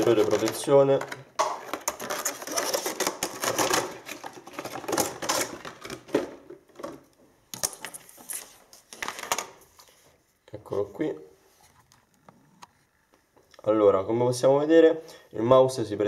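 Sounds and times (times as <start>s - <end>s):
plastic packaging crackling: 0.0s - 6.2s
clicks and rustles of handling: 0.0s - 10.0s.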